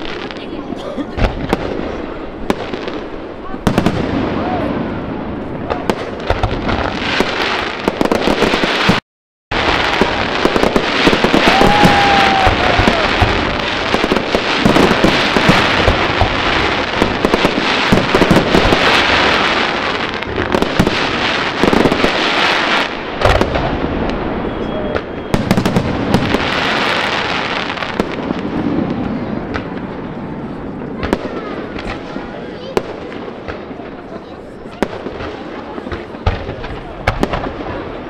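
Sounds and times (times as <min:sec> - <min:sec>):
fireworks bangs and crackling: 0:00.0 - 0:38.0
firework whistle rising: 0:11.3 - 0:13.3.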